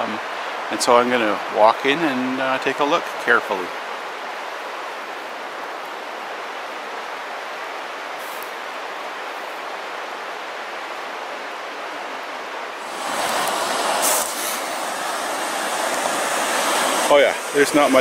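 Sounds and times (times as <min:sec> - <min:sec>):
river rushing over rocks: 0:12.5 - 0:18.0.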